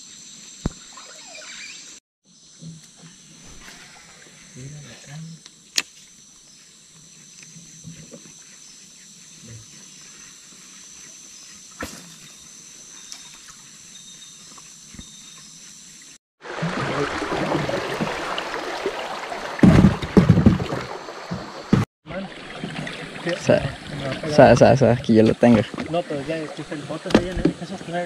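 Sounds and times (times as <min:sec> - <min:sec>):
water rushing beside boat: 0:16.4 - 0:28.0
heavy splashing thumps: 0:16.5 - 0:21.9.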